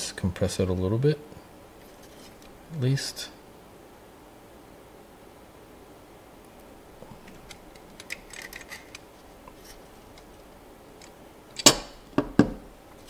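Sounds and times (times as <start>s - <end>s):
pliers clicking and creaking: 7.1s - 12.0s.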